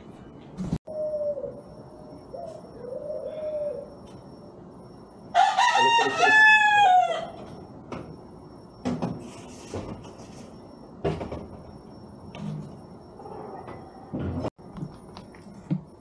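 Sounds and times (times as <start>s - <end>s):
rooster crowing: 5.3s - 7.6s.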